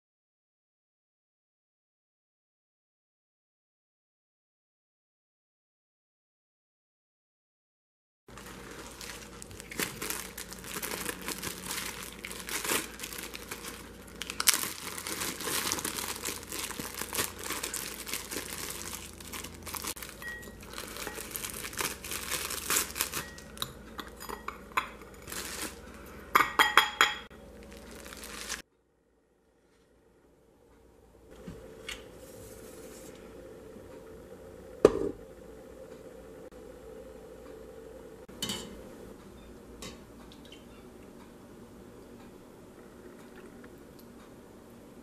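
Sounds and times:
plastic bag crinkling: 0:08.3 - 0:23.6, 0:25.1 - 0:26.1, 0:27.4 - 0:28.6.

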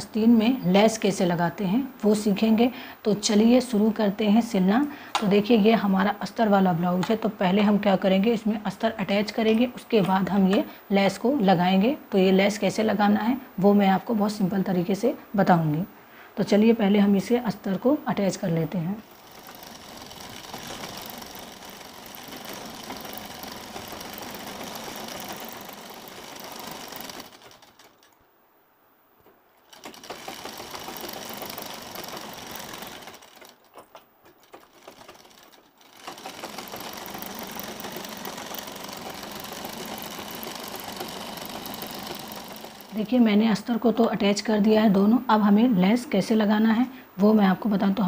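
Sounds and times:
sewing machine stitching: 0:18.4 - 0:28.2, 0:29.6 - 0:44.5.

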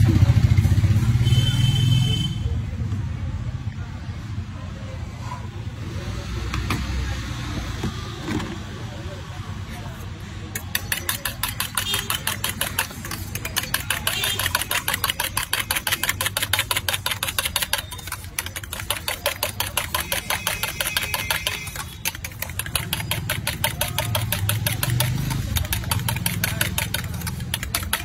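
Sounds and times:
spoon beating eggs in metal bowl: 0:10.6 - 0:28.0.

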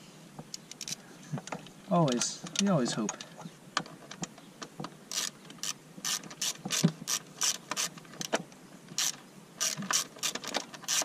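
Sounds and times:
socket ratchet clicking: 0:05.1 - 0:07.9, 0:09.0 - 0:11.0.

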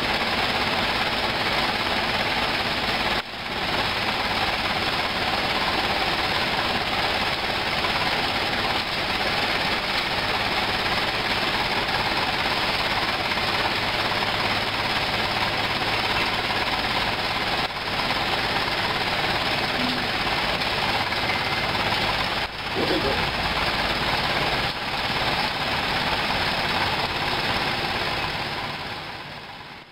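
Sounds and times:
truck engine running: 0:00.0 - 0:29.9.

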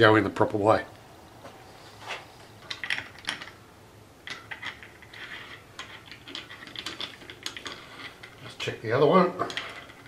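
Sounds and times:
small metal parts clicking: 0:02.6 - 0:03.6, 0:04.2 - 0:08.5, 0:09.4 - 0:10.0.

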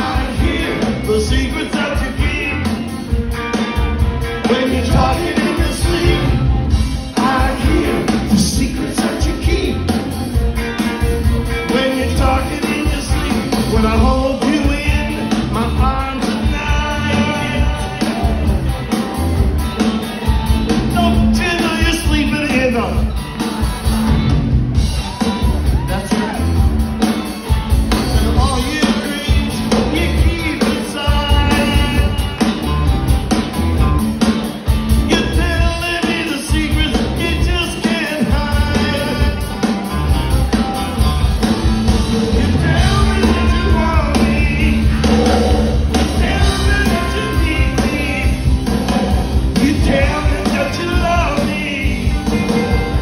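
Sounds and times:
sung lead vocal: 0:00.0 - 0:03.3, 0:04.2 - 0:10.0, 0:11.4 - 0:19.2, 0:28.0 - 0:32.5, 0:35.0 - 0:39.7, 0:42.0 - 0:53.0
live rock band through pa: 0:00.0 - 0:53.0.

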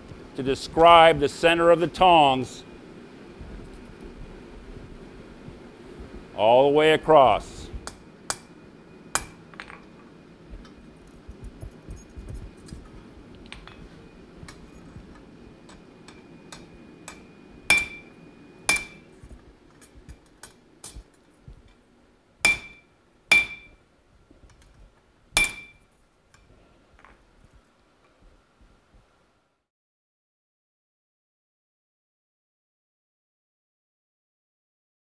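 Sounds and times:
hammer striking tongs on anvil: 0:09.1 - 0:09.4, 0:15.7 - 0:18.1, 0:18.7 - 0:19.1, 0:22.4 - 0:23.8, 0:25.4 - 0:25.8
anvil ringing: 0:17.7 - 0:18.1, 0:18.7 - 0:19.0, 0:22.5 - 0:23.8, 0:25.4 - 0:25.8.

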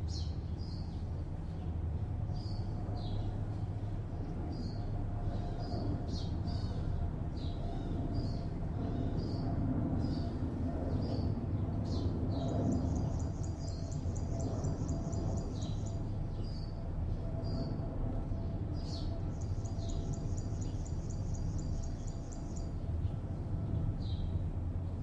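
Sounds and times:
distant city traffic hum: 0:00.0 - 0:25.0
small birds chirping: 0:11.0 - 0:16.8, 0:18.8 - 0:23.2.

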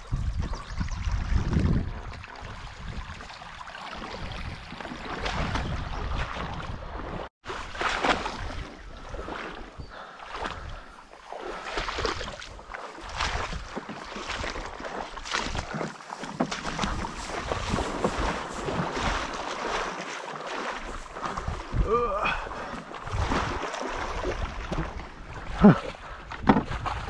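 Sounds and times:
wind rumbling on microphone: 0:00.0 - 0:07.3, 0:11.9 - 0:14.6, 0:16.6 - 0:19.4, 0:20.8 - 0:27.0
footsteps splashing through water: 0:01.0 - 0:27.0.

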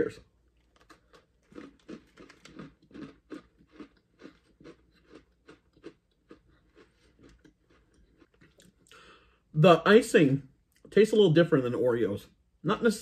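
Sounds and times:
chewing crunchy cookie: 0:00.4 - 0:09.1.

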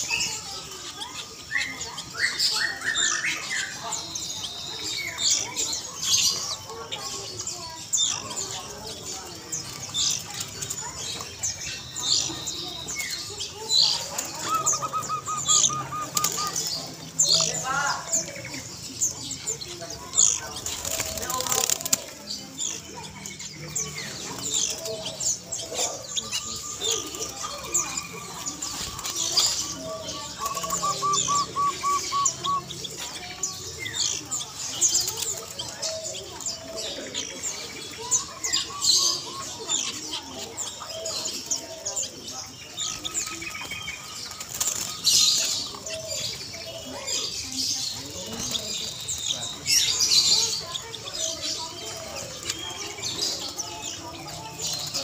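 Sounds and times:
small birds chirping: 0:00.0 - 0:55.0
doves cooing: 0:08.1 - 0:55.0
wings flapping and fluttering: 0:08.2 - 0:18.4, 0:19.5 - 0:25.8, 0:26.4 - 0:31.8, 0:32.9 - 0:37.2, 0:42.8 - 0:46.4
dove cooing: 0:13.8 - 0:17.6, 0:28.6 - 0:33.2.

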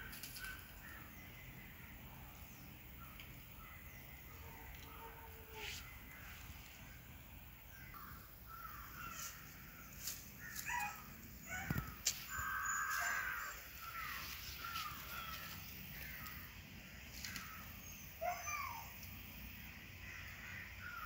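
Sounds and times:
crows cawing: 0:11.6 - 0:16.4, 0:20.0 - 0:21.0.

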